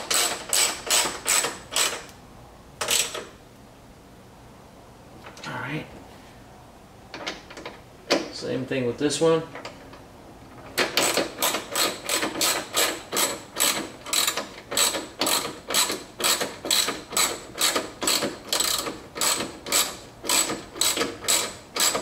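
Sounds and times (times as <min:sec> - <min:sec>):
socket ratchet clicking: 0:00.0 - 0:02.1, 0:10.8 - 0:22.0.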